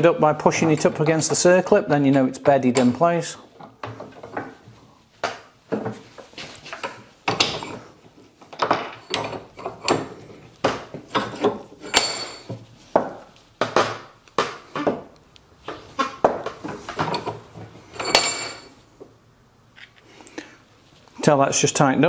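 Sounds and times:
metal clanks and knocks: 6.7 - 15.1, 16.0 - 18.8.

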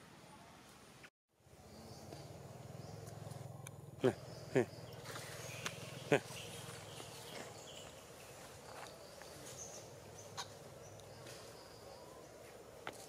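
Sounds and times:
high bird chirps: 1.7 - 11.8.

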